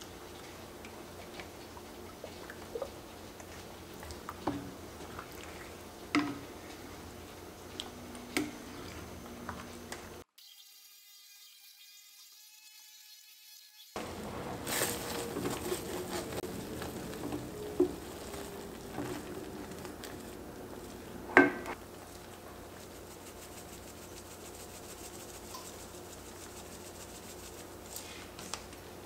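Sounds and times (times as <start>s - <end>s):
thick sauce stirred in a pot: 14.0s - 21.1s, 21.8s - 28.4s
soft sizzling: 14.0s - 28.8s.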